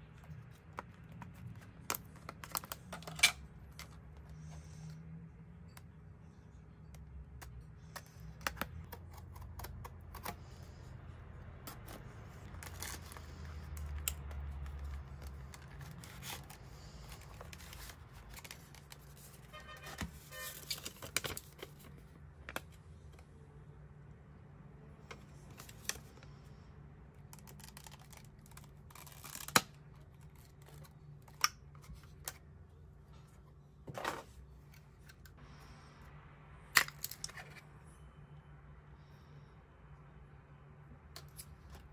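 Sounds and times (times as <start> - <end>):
paper inserts rustling: 0.1 - 4.8, 11.6 - 22.8.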